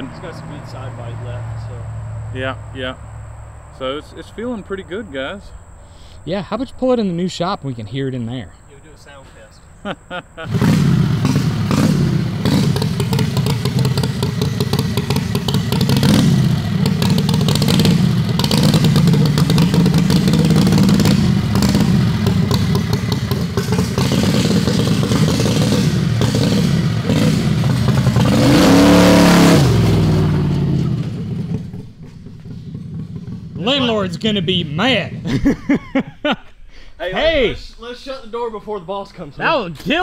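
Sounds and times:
dragster engine revving: 10.4s - 35.6s.

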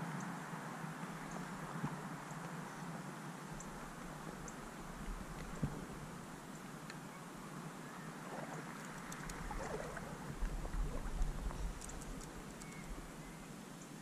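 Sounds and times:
faint ticks: 1.3s - 2.6s, 3.5s - 7.0s, 8.7s - 13.1s
water sloshing around legs: 8.2s - 12.7s
wind rumble on microphone: 8.3s - 13.4s.

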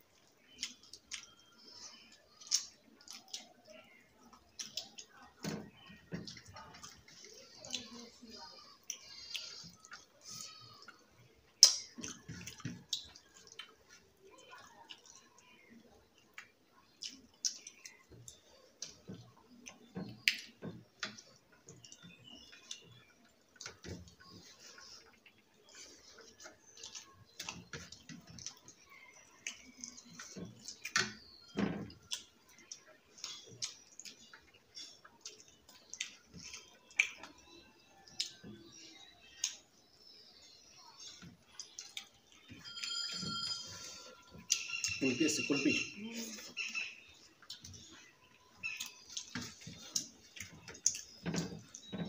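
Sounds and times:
fingers mixing rice on plates: 0.0s - 52.0s
chewing and lip smacks: 0.1s - 5.3s, 6.2s - 42.5s, 46.4s - 51.9s.

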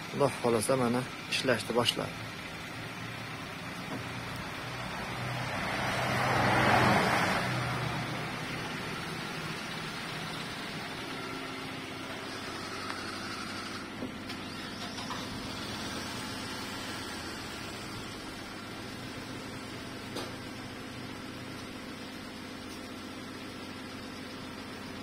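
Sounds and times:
vehicle passing on wet road: 4.1s - 10.6s.

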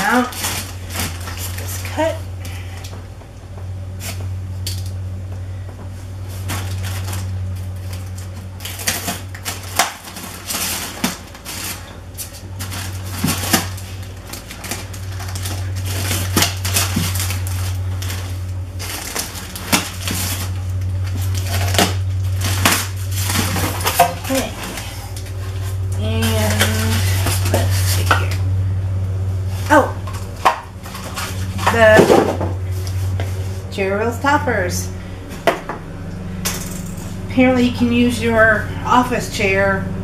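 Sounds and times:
cardboard packaging clicks and scrapes: 0.0s - 2.9s, 6.2s - 28.4s, 29.6s - 33.7s
steady low hum: 0.0s - 40.0s.

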